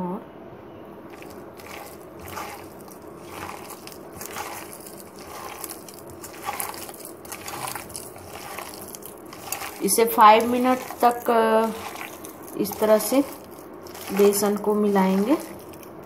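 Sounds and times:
hand squishing dough in bowl: 0:01.1 - 0:16.0.

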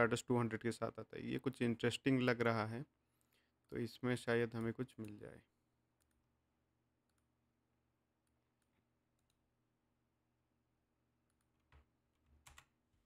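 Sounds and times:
computer mouse clicks: 0:06.0 - 0:06.2, 0:07.0 - 0:07.3, 0:08.2 - 0:09.5, 0:11.2 - 0:12.8.

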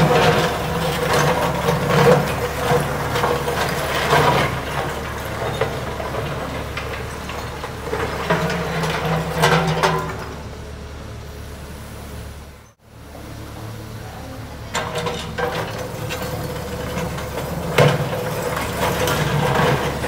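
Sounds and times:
diesel engine under hydraulic load: 0:00.0 - 0:20.0.

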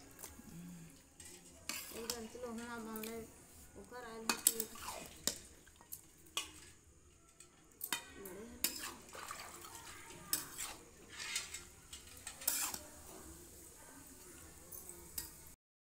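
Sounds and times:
metal spatula scraping pan: 0:01.1 - 0:05.5, 0:07.9 - 0:13.6.

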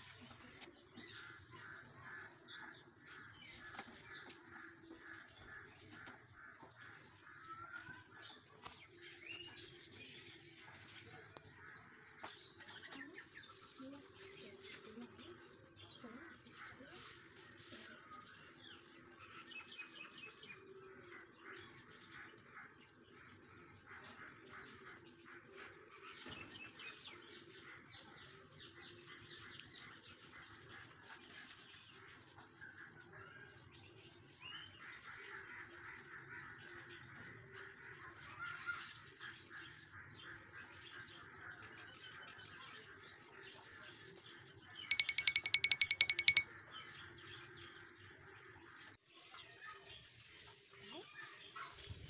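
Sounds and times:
birds chirping: 0:44.9 - 0:46.4
fast high-pitched ticking rattle: 0:44.9 - 0:46.4.

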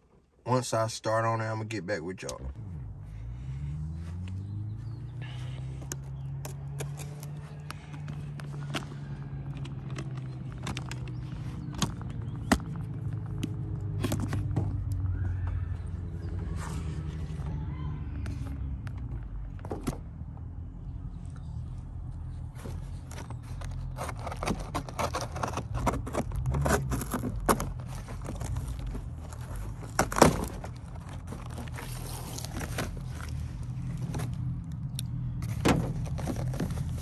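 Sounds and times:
cardboard box scrapes and crinkles: 0:22.6 - 0:33.4.

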